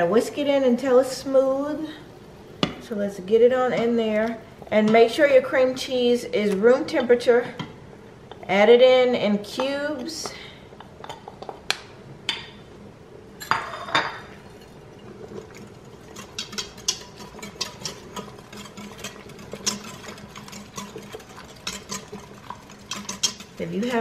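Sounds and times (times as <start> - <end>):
whisk clicking in metal pot: 15.5 - 24.0.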